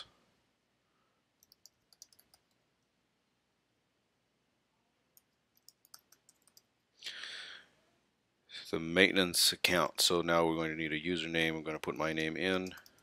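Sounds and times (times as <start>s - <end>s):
keyboard typing: 1.4s - 2.6s, 5.2s - 6.7s, 11.9s - 13.0s.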